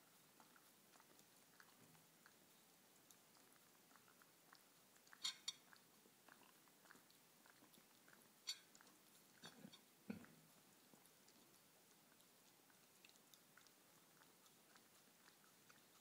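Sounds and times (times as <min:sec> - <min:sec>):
dog licking plate: 0:00.0 - 0:16.0.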